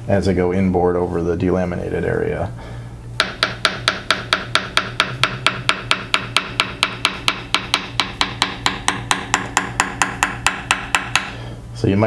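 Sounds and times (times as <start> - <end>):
small hammer tapping: 3.2 - 11.4.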